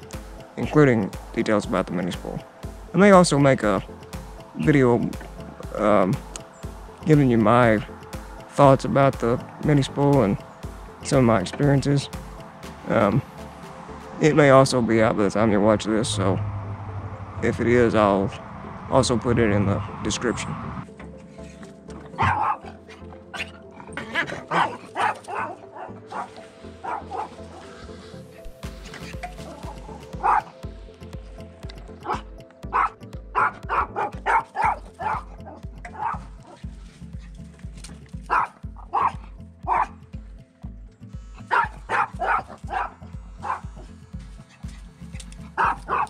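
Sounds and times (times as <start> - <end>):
background music: 0.0 - 46.0
low pulsing rumble: 3.8 - 21.0
small dog barking: 22.1 - 23.6, 24.5 - 27.6, 30.2 - 30.5, 32.0 - 36.6, 38.3 - 40.0, 41.5 - 43.8, 45.6 - 46.0.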